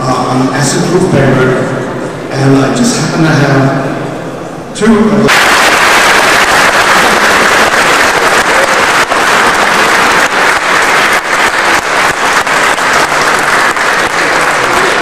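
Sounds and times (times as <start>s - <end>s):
crowd clapping: 5.3s - 15.0s.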